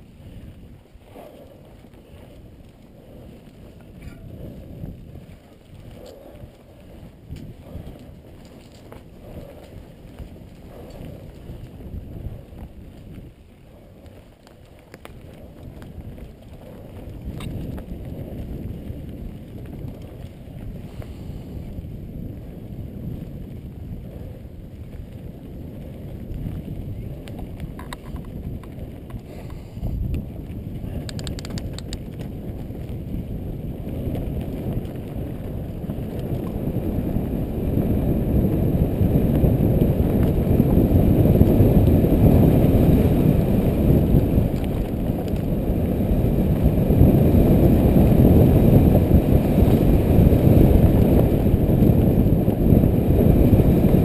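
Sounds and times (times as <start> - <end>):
mountain bike rattling over dirt: 0.0 - 54.0
wind rumbling on microphone: 0.0 - 54.0
sharp clicks: 31.0 - 32.3.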